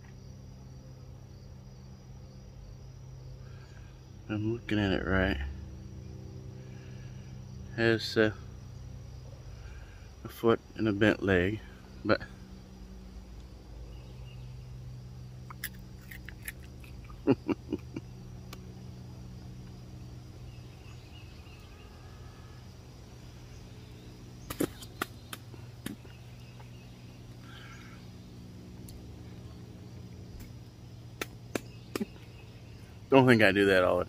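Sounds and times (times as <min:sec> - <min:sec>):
steady low hum: 0:00.0 - 0:34.0
crunchy chewing: 0:15.4 - 0:18.8, 0:24.4 - 0:26.8.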